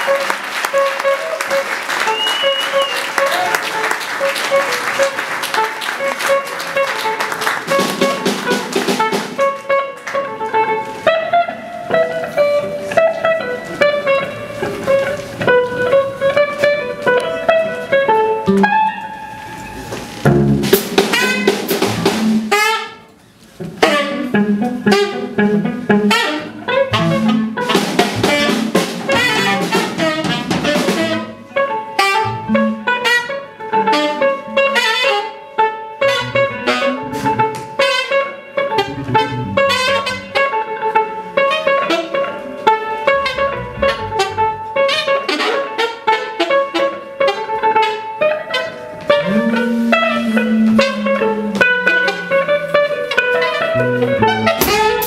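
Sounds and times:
busy drumming: 0.0s - 10.6s, 19.9s - 23.0s, 23.6s - 33.1s, 38.8s - 41.4s, 49.0s - 55.0s
electric guitar: 0.0s - 55.0s
saxophone: 0.0s - 55.0s
electric bass: 10.7s - 22.5s, 23.6s - 31.5s, 36.0s - 37.8s, 38.7s - 41.2s, 42.6s - 44.8s, 48.9s - 55.0s.

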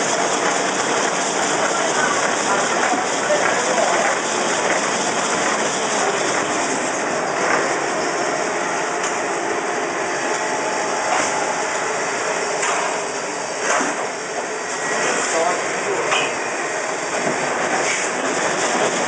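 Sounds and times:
band saw cutting paper logs: 0.0s - 7.7s.

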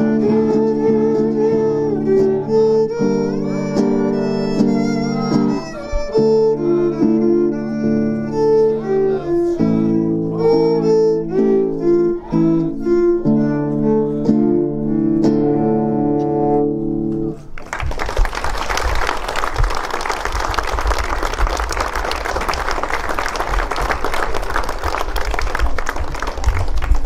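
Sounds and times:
live music: 0.0s - 17.6s
audience applause: 17.6s - 27.0s.

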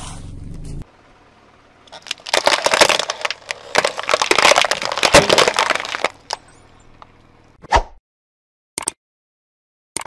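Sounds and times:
tyre crushing plastic eggs: 1.9s - 6.4s.

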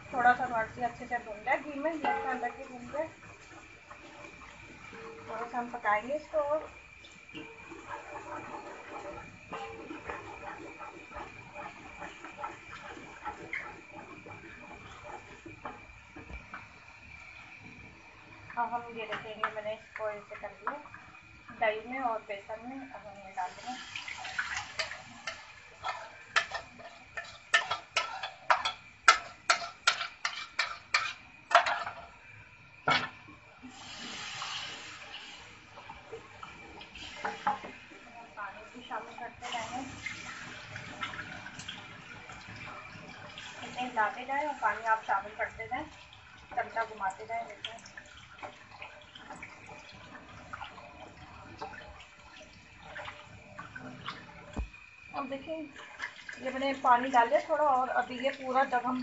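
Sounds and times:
water sloshing and splashing: 32.9s - 59.0s.

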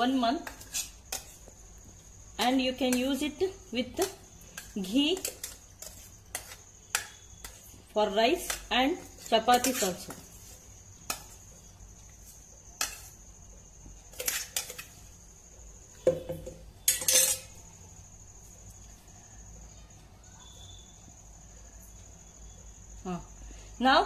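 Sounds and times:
steel jar clinking and scraping: 16.9s - 17.5s.

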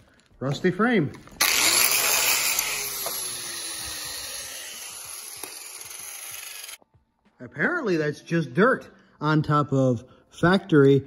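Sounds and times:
angle grinder on steel: 1.4s - 6.8s.

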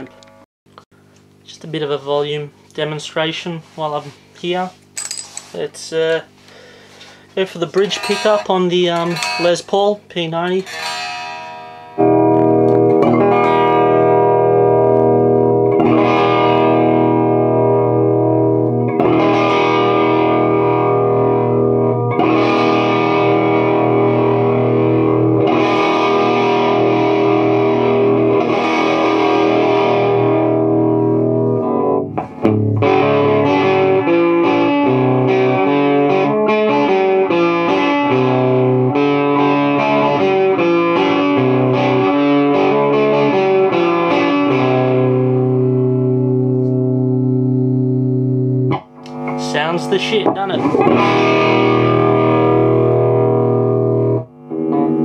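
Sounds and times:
distorted electric guitar chords: 0.0s - 1.4s, 6.5s - 55.0s
fast electric guitar riff: 7.5s - 55.0s.

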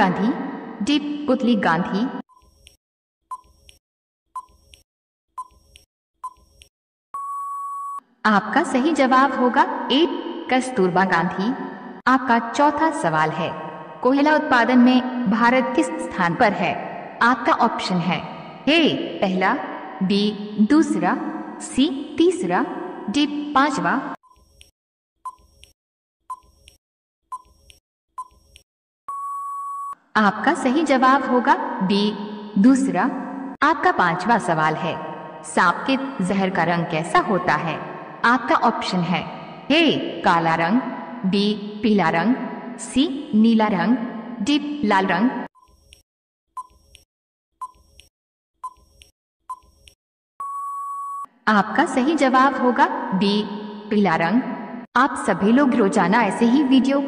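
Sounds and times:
timer beeping ticks: 2.3s - 3.8s, 4.4s - 8.0s, 24.2s - 30.0s, 46.6s - 47.0s, 47.6s - 51.3s
long steady beep: 7.2s - 8.0s, 29.1s - 30.0s, 50.4s - 51.3s.

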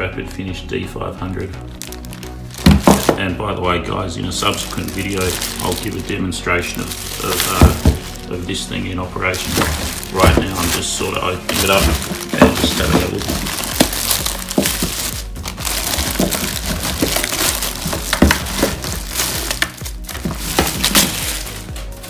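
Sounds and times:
plastic bag rustling: 1.6s - 22.0s
sprayer knocking on wooden floor: 7.5s - 8.2s.

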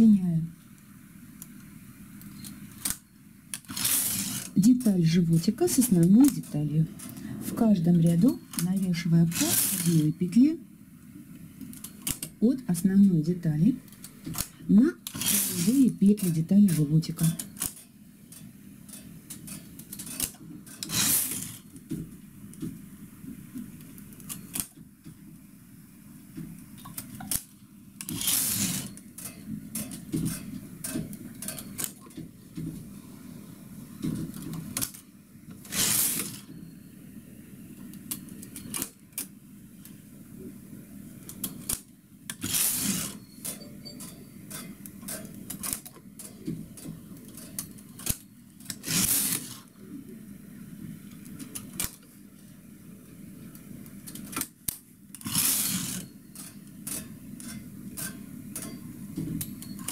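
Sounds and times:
knitting carriage sliding: 3.6s - 4.9s, 9.3s - 10.2s, 15.1s - 17.5s, 19.6s - 21.7s, 28.0s - 29.0s, 35.7s - 36.5s, 42.4s - 43.7s, 48.7s - 49.7s, 55.2s - 56.1s.

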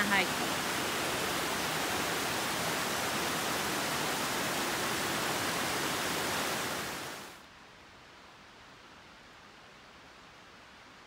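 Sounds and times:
creek water rushing: 0.0s - 7.5s.

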